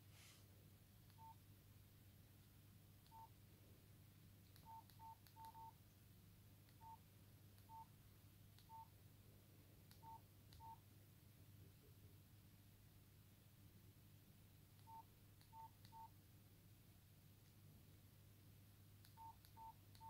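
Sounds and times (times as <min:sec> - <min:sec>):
phone keypad beeps: 0:01.2 - 0:01.4, 0:03.1 - 0:03.3, 0:04.6 - 0:05.8, 0:06.8 - 0:07.0, 0:07.7 - 0:07.9, 0:08.7 - 0:08.9, 0:10.0 - 0:10.8, 0:14.8 - 0:16.1, 0:19.2 - 0:20.0.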